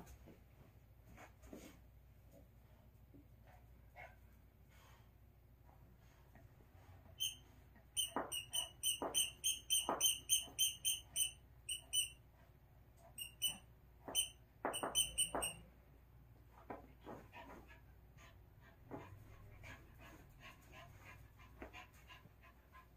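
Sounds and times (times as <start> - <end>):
squeaky dog toy squeaking: 7.2 - 7.4, 8.0 - 12.2, 13.2 - 15.6.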